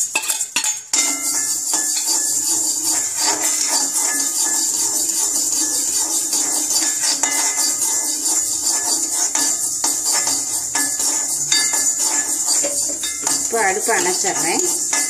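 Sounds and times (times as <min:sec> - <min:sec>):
metal spatula scraping pan: 0:00.0 - 0:15.0
seeds rattling: 0:09.3 - 0:15.0.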